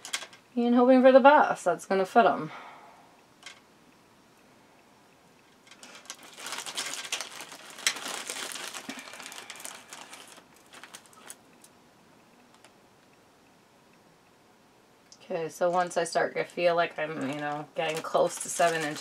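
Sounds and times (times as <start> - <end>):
plastic bag crinkling: 0.0 - 0.4, 5.6 - 11.7, 15.6 - 19.0.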